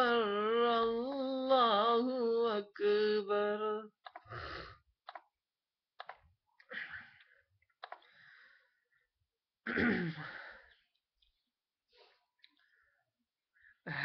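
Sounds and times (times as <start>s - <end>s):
person breathing: 4.2s - 4.8s, 6.6s - 9.1s
person clearing throat: 9.6s - 10.3s.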